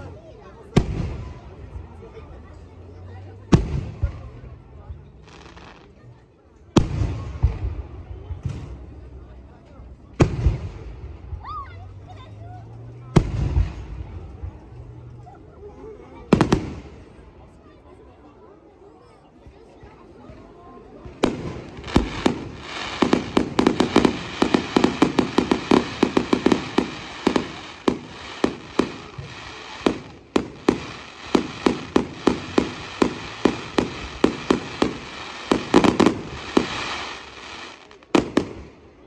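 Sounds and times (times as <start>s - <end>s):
fireworks banging: 16.3s - 17.1s, 21.0s - 39.0s.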